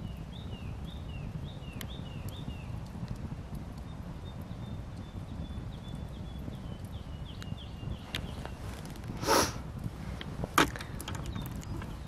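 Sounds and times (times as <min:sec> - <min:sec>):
low outdoor rumble: 0:00.0 - 0:12.0
sharp woody crack: 0:10.5 - 0:11.2.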